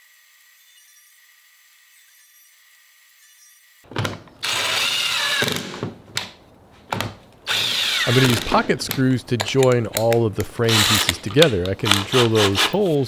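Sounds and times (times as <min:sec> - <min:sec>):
drill whining while boring: 0:00.0 - 0:03.8, 0:04.4 - 0:05.8, 0:07.5 - 0:08.5, 0:10.7 - 0:12.9.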